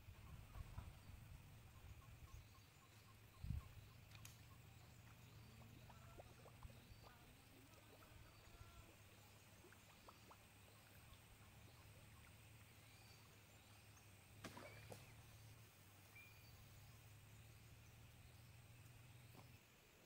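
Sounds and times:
faint small chirps and ticks: 0.0 - 19.7
low steady rumble: 15.0 - 19.5.

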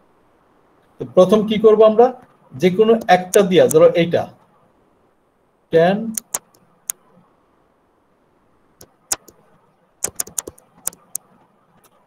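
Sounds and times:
stylus tapping on touchscreen: 6.2 - 6.6, 9.1 - 9.4, 10.0 - 11.2.

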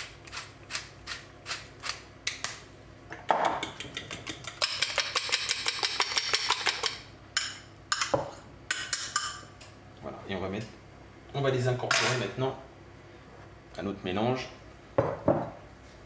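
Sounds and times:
pepper mill grinding: 0.0 - 2.0
fork beating eggs in glass bowl: 3.4 - 8.1.

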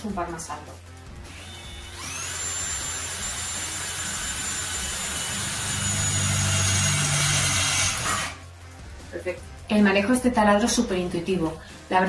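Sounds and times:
drill bit cutting metal: 1.3 - 8.4
drill motor whining: 1.3 - 8.4.

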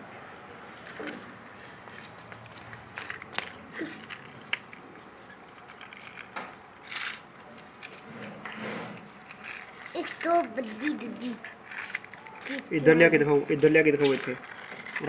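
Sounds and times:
plastic wheels scraping concrete: 0.8 - 15.0
plastic toy clicks: 2.4 - 4.8, 5.5 - 8.1, 9.2 - 15.0.

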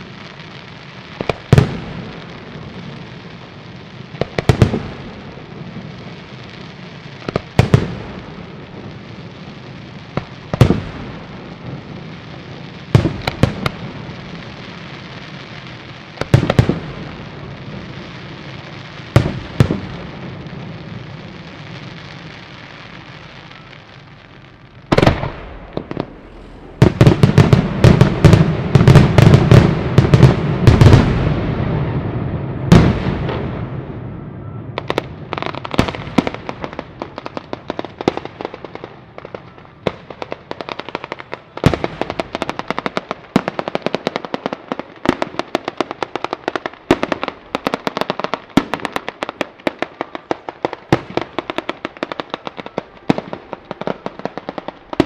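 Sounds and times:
firecrackers crackling: 0.0 - 55.0
firecracker bangs: 19.0 - 20.4, 24.8 - 40.4.

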